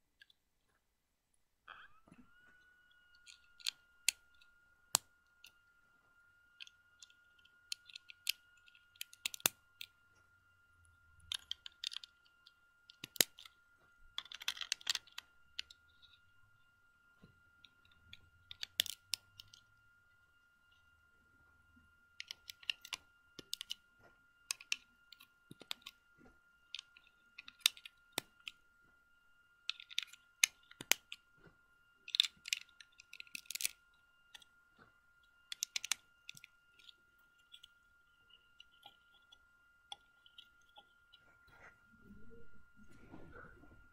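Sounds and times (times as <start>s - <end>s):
plastic bricks clicking together: 9.0s - 9.6s, 12.9s - 13.5s, 14.2s - 15.8s, 18.5s - 19.6s, 22.2s - 23.8s, 26.8s - 28.6s, 29.7s - 31.2s, 32.1s - 33.8s, 35.5s - 36.9s.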